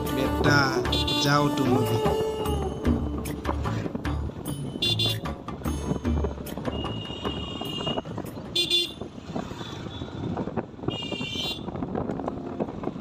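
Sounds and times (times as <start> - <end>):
motorcycle running: 0.0 - 13.0
traffic noise: 0.0 - 13.0
vehicle horn toots: 0.8 - 1.7, 4.8 - 5.3, 6.7 - 9.1, 10.8 - 11.8.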